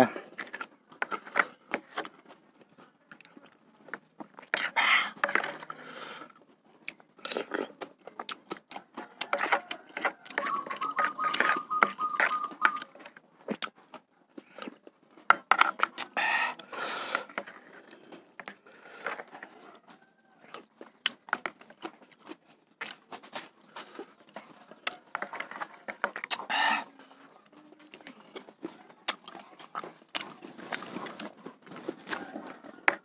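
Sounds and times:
person slurping broth: 4.6s - 6.4s, 16.0s - 18.0s, 26.2s - 27.0s
spoon scraping plastic plate: 9.0s - 13.0s.

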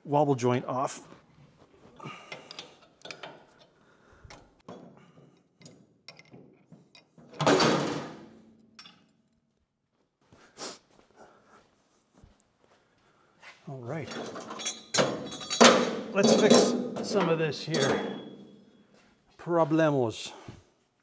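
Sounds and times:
tools clicking and rattling: 2.2s - 7.6s, 14.1s - 18.5s
loud metal clank: 14.2s - 18.6s.

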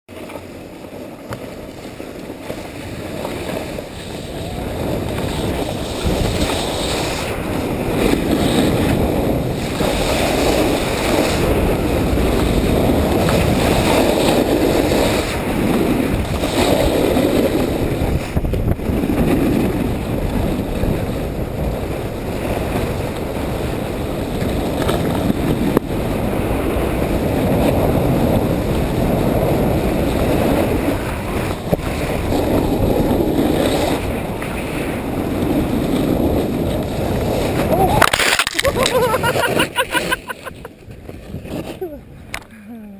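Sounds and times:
skis sliding on snow: 0.1s - 42.1s
wind buffeting microphone: 0.2s - 42.6s.

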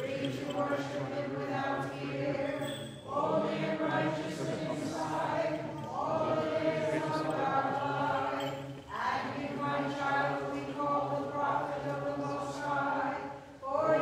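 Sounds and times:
voices singing chant: 0.0s - 14.0s.

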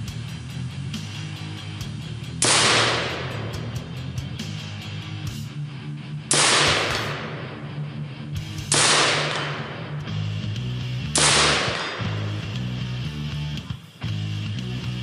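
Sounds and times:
background music: 0.0s - 15.0s
rifle shots: 2.4s - 4.0s, 6.3s - 8.0s, 8.6s - 10.3s, 11.1s - 12.5s.

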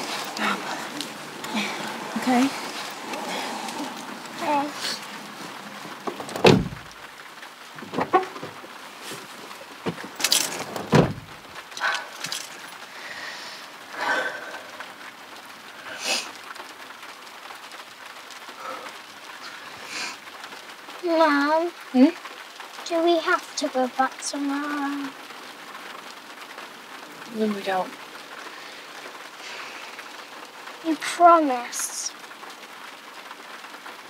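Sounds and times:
faint hiss: 0.0s - 16.6s, 18.5s - 20.5s
heavy dull thuds: 4.4s - 7.0s, 7.8s - 11.5s.

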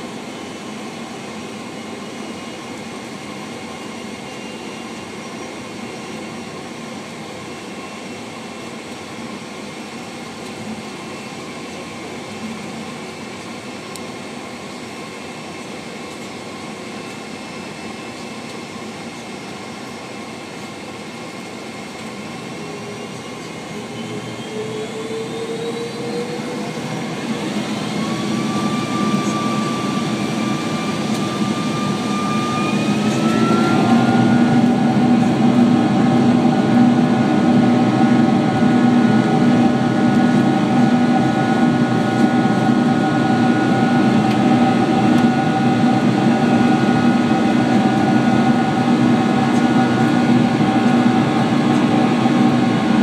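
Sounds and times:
jet engines whining: 0.0s - 53.0s
loud rushing drone: 24.8s - 53.0s.

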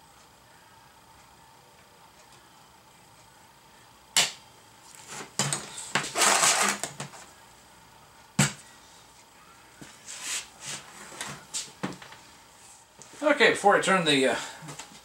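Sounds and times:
metal scraping on metal: 6.0s - 6.8s.

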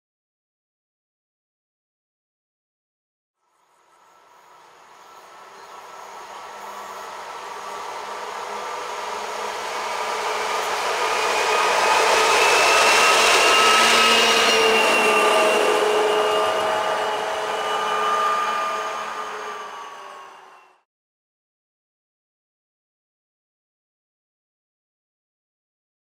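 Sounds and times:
diesel locomotive drone and whine: 3.4s - 20.8s.

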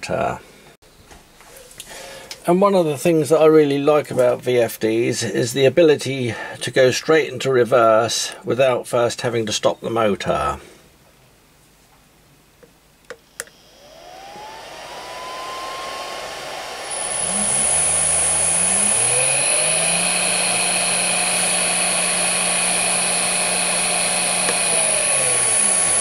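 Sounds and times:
cooling fan: 13.4s - 26.0s
electric motor whine: 13.4s - 26.0s.

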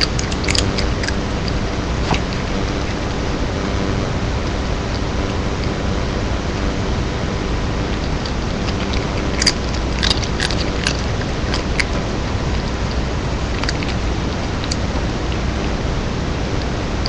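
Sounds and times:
cat crunching chips: 0.0s - 2.5s, 8.0s - 15.4s
steady hiss: 0.0s - 17.0s.

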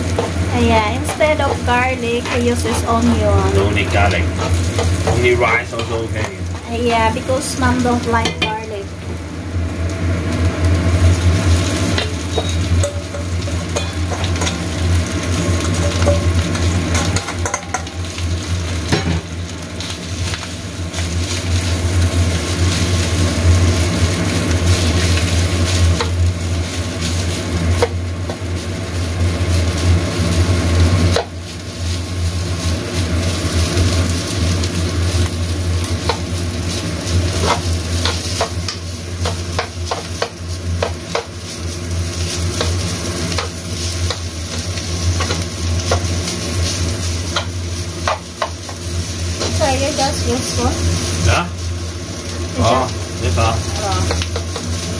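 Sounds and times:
rice sizzling in oil: 0.0s - 54.9s
steady low hum: 0.0s - 54.9s
spatula scraping a wok: 3.7s - 6.6s, 11.5s - 14.8s, 20.1s - 34.0s, 35.9s - 51.3s.

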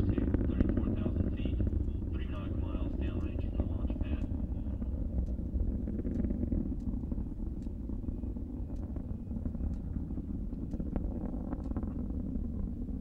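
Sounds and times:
distant rocket engine rumble: 0.0s - 13.0s
faint sharp crackles: 0.0s - 13.0s.

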